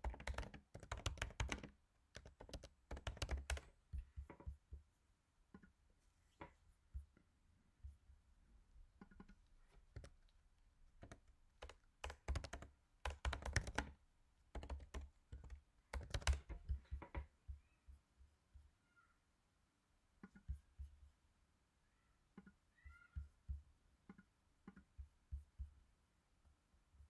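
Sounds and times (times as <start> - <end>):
computer keyboard key clicks: 0.0 - 3.7, 11.0 - 13.9, 14.6 - 16.5.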